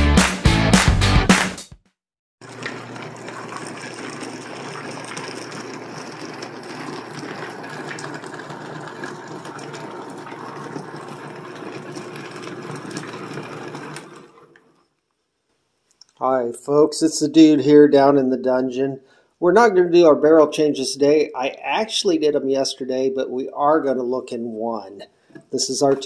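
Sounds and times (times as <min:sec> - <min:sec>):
motor hum: 0:02.4 - 0:14.8.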